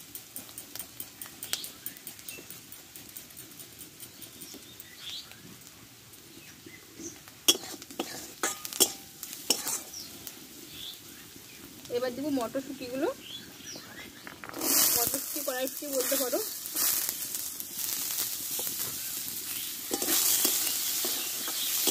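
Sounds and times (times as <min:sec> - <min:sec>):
spatula clanking against a wok: 0:07.5 - 0:09.9, 0:19.8 - 0:21.9.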